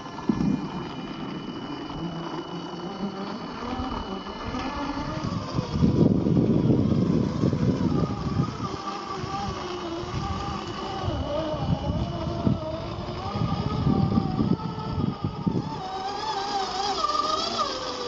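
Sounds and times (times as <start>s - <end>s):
electric motor whining: 0.0s - 18.0s.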